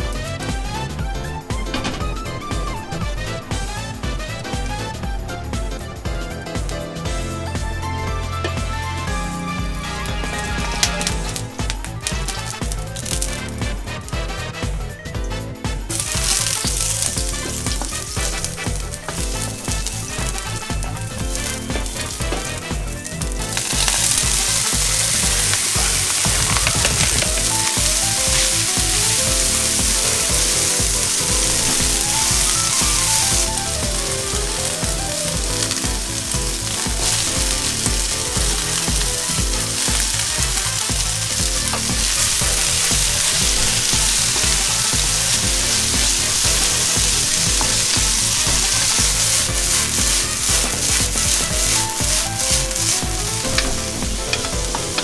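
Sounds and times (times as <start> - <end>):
vegetables sizzling in hot oil: 2.1 - 55.0
wooden spatula stirring: 15.9 - 55.0.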